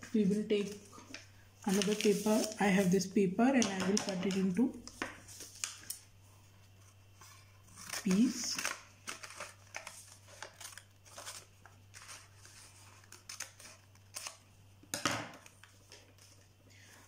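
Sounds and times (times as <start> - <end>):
paper rustling: 0.2 - 3.0, 6.8 - 14.4.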